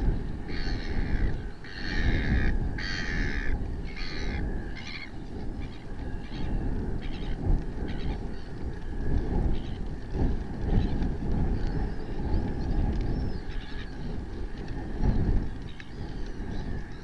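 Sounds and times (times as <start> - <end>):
low rumble: 0.0 - 17.0
bird cawing: 0.4 - 7.4.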